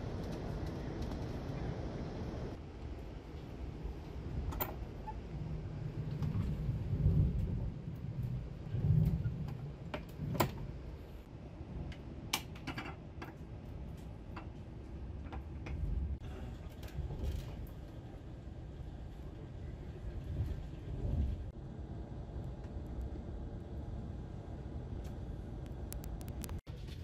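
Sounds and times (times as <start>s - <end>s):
train carriage rumble: 0.0s - 27.0s.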